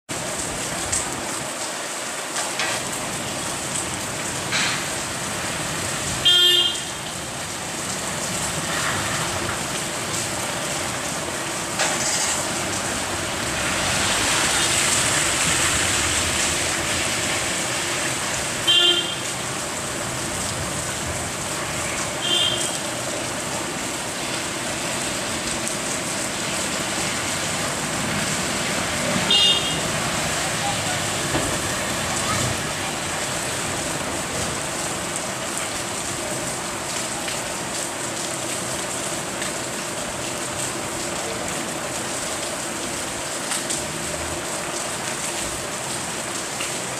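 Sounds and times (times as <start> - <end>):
steady rain: 0.1 - 46.9
street traffic: 0.1 - 46.9
vehicle horn beeping: 6.2 - 7.0, 18.7 - 19.3, 22.2 - 22.8, 29.3 - 29.9.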